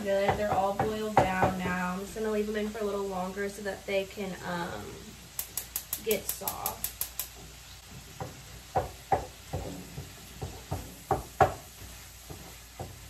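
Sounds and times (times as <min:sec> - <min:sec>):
wooden spatula knocking on pan: 0:00.2 - 0:01.9, 0:05.6 - 0:13.0.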